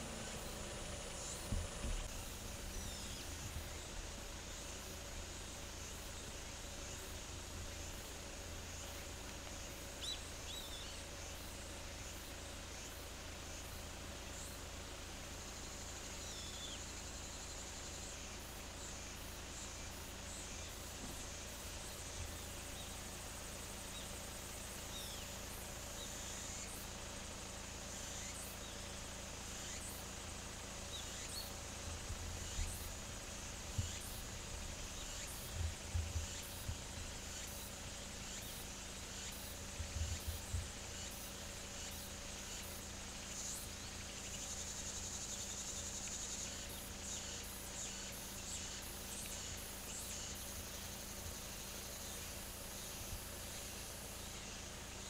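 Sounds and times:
insects chirring: 0:00.0 - 0:55.0.

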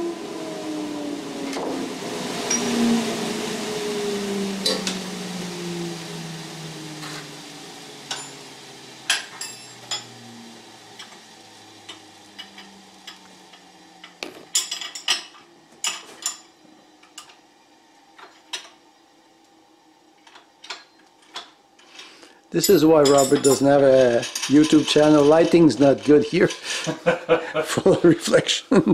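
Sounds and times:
motor spinning down: 0:00.0 - 0:14.6
hand tools clinking on metal: 0:22.6 - 0:27.0.

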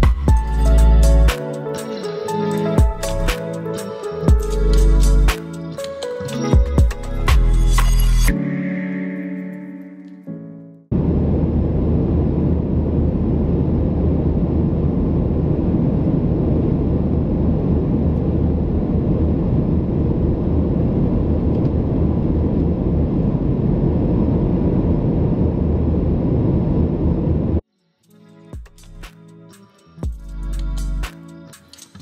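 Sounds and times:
constant low hum: 0:10.9 - 0:27.6.

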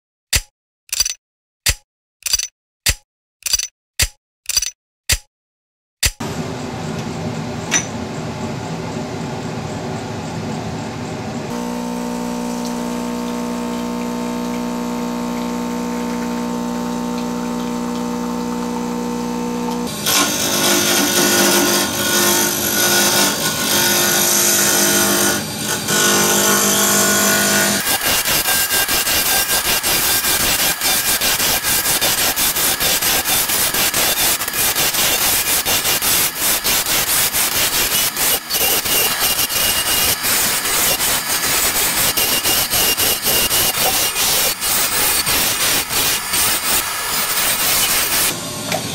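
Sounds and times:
lathe motor hum: 0:06.2 - 0:28.8
turning tool cutting wood: 0:11.5 - 0:48.9
sandpaper rasping on spinning wood: 0:25.9 - 0:48.4.

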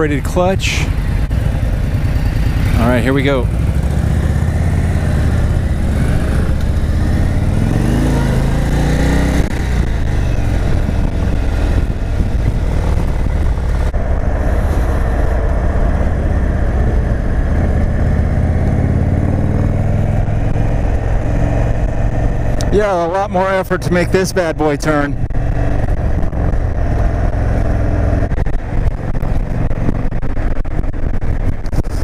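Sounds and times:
motorcycle engine pulling away: 0:01.0 - 0:23.1.

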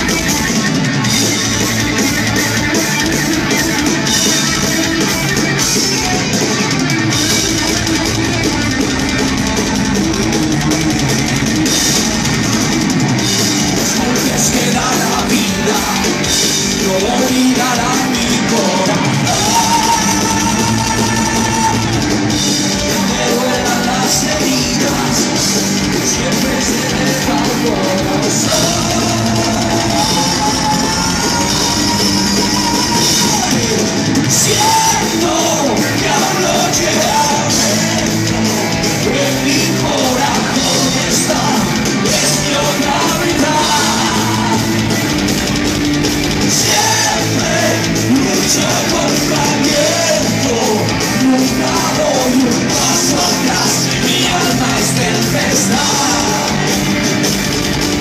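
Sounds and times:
distorted electric guitar: 0:00.0 - 0:58.0
drum kit: 0:00.0 - 0:58.0
man singing: 0:13.8 - 0:44.9, 0:46.5 - 0:56.9.

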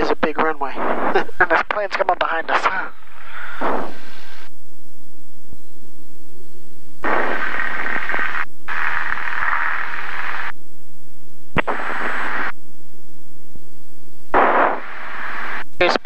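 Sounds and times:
radio static rushes: 0:00.0 - 0:04.5, 0:07.0 - 0:10.6, 0:11.5 - 0:12.6, 0:14.3 - 0:16.0.

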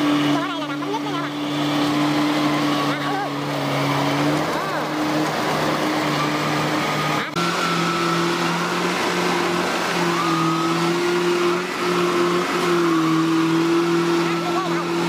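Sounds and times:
diesel engine running under load: 0:00.0 - 0:15.0.

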